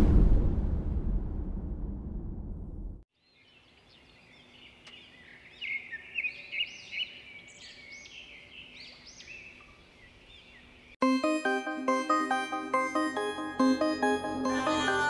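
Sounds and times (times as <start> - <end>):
low rumble: 0.0 - 3.0
birds chirping: 3.2 - 11.0.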